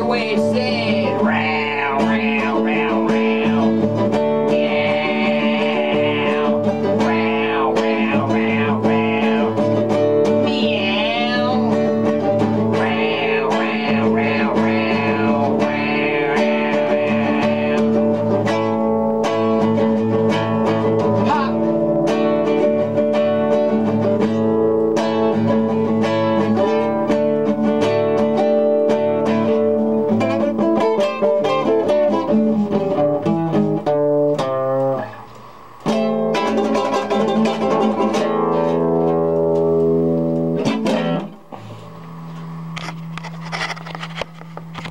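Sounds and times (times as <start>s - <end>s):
wordless sung vocal: 0.0s - 18.6s
classical guitar strummed and picked: 0.0s - 44.9s.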